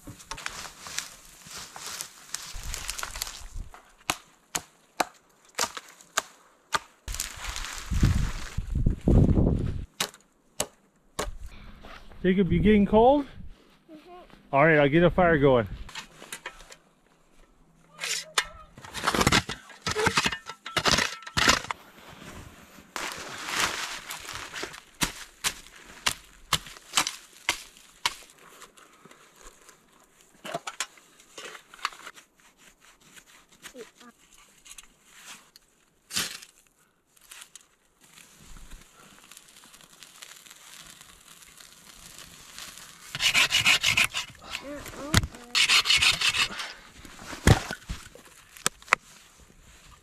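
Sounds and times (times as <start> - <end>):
twigs snapping and crunching: 0.0 - 8.7, 23.0 - 30.9, 35.5 - 45.5, 47.4 - 49.1
saw cutting wood: 43.1 - 44.4, 45.5 - 46.6
ferro rod scraping: 43.1 - 47.9.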